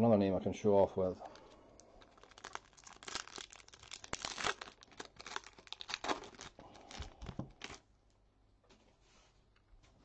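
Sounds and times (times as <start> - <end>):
foil wrapper crinkling and tearing: 1.2 - 7.9.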